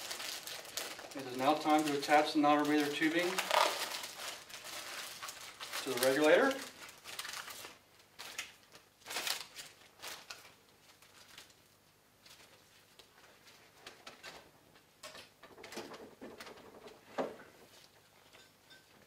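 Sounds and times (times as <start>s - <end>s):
plastic tubing rustling: 0.0s - 14.0s.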